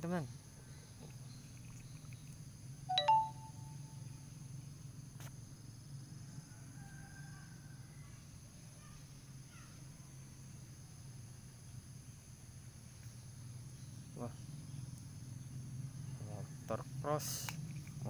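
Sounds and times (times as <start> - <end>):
insects trilling: 0.0 - 18.0
short ringing chirp: 2.9 - 4.0.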